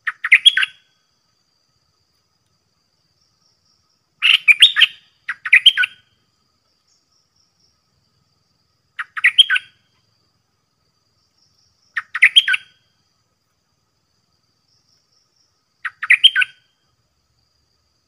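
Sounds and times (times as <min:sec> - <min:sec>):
bird singing: 0:00.0 - 0:01.0, 0:03.2 - 0:08.1, 0:08.7 - 0:10.1, 0:11.2 - 0:13.0, 0:14.6 - 0:17.0.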